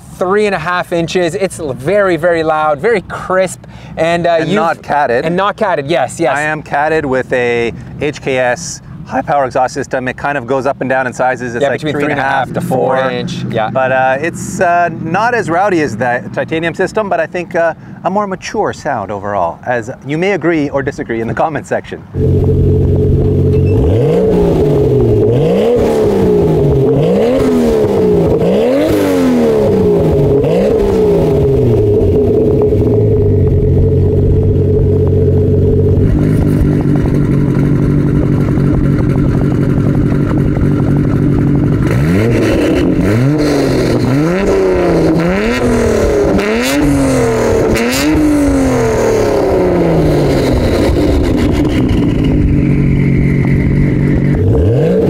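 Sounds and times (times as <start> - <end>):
car engine idling: 22.1 - 25.5, 26.2 - 54.9
car engine revving in blips: 22.2 - 55.0
long falling engine rev: 22.2 - 55.0.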